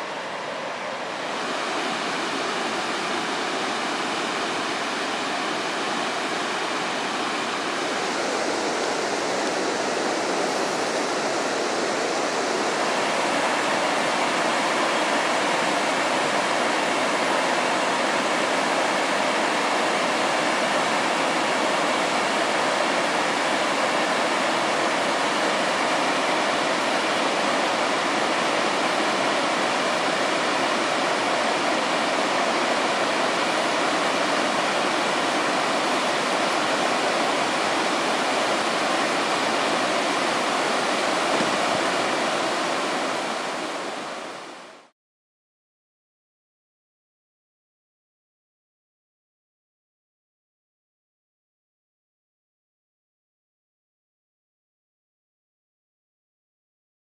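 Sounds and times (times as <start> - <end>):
whitewater rapids rushing over boulders: 0.0 - 44.9.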